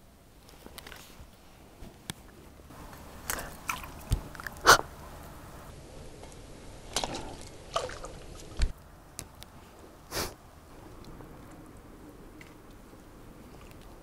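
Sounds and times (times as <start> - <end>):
splashes in shallow water: 2.8 - 5.5, 6.9 - 8.7.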